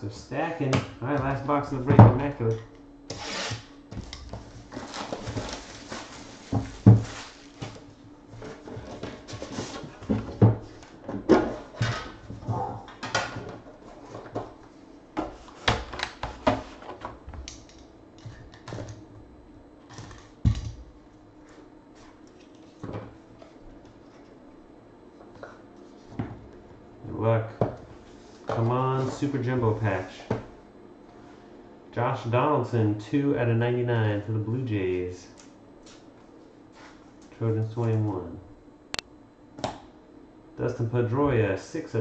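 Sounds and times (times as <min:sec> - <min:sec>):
wrap and cardboard rustling: 0:04.4 - 0:07.9.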